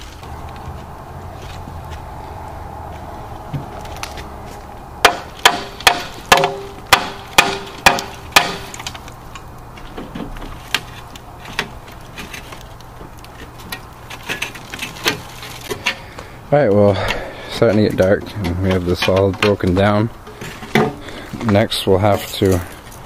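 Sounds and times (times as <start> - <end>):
hammer blows on metal: 5.0 - 8.8.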